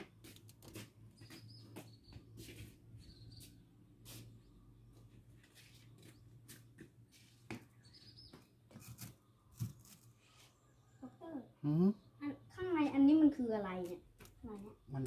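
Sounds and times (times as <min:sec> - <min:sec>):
faint bird chirps: 0:01.2 - 0:03.6.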